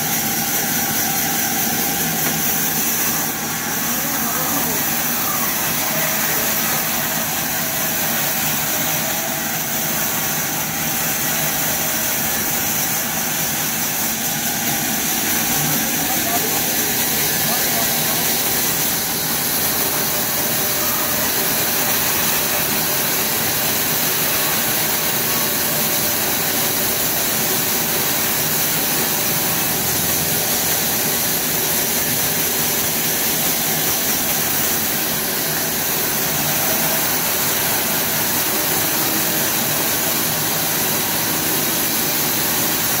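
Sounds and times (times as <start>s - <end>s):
band saw sawing wood: 0.0s - 43.0s.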